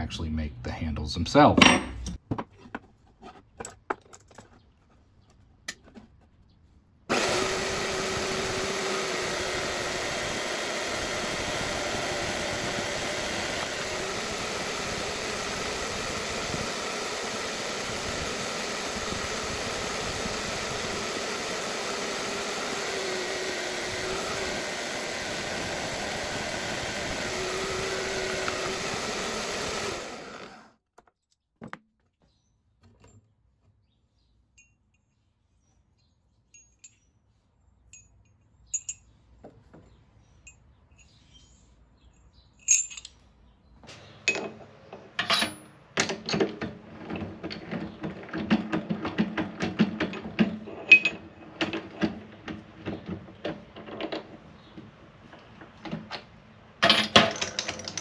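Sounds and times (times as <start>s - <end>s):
whirring machine: 7.1s - 30.8s.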